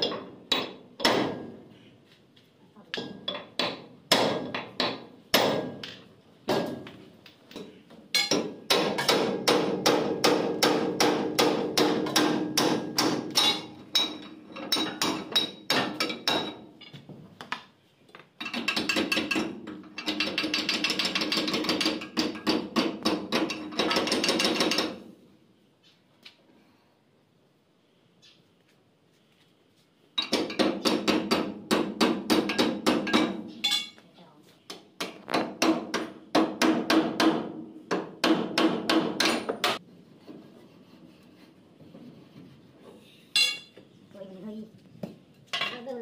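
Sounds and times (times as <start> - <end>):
hammer striking metal: 8.2 - 16.6.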